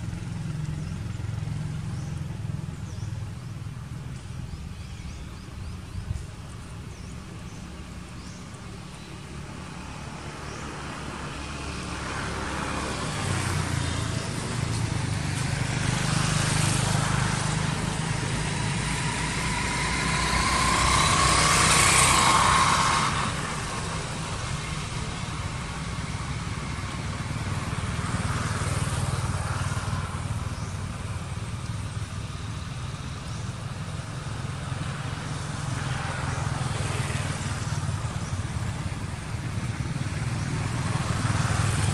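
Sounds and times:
low engine hum: 0.0s - 41.9s
vehicles passing by: 0.0s - 41.9s.

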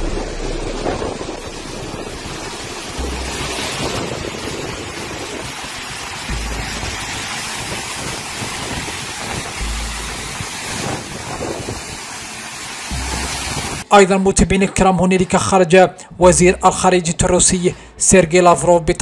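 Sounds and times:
wind thumps on microphone: 0.0s - 12.0s
floodwater pouring over rock: 0.0s - 13.8s.

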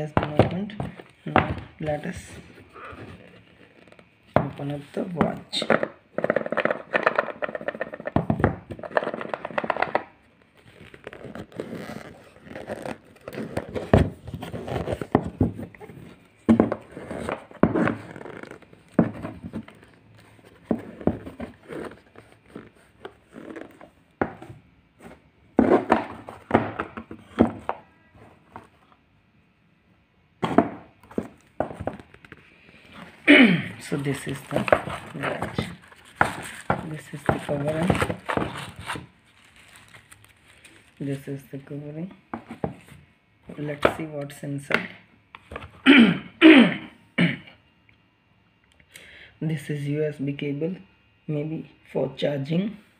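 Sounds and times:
cardboard box knocking: 25.6s - 27.8s
paper wrapping rustling: 33.8s - 41.3s.

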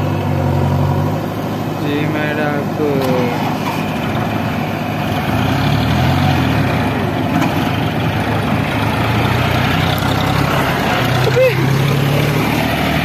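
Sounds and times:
heavy diesel engine running: 0.0s - 13.0s.

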